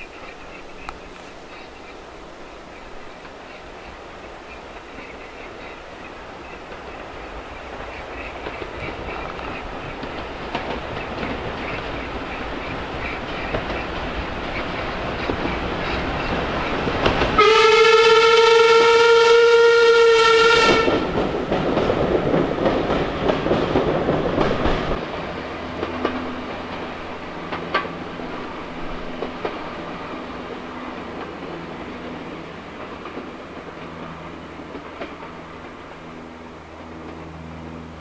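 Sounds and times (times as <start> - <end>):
steam locomotive passing: 0.0 - 38.0
train wheel clatter: 4.9 - 18.1, 20.3 - 37.9
steam whistle: 17.4 - 21.1.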